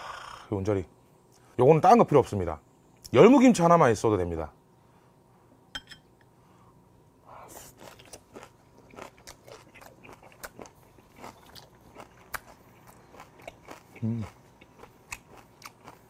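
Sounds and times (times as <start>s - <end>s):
man chewing crunchy food: 7.5s - 16.0s.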